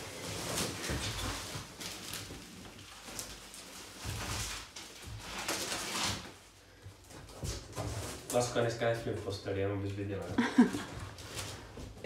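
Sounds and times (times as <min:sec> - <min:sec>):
bubble wrap crinkling: 0:00.0 - 0:09.0, 0:09.8 - 0:12.0.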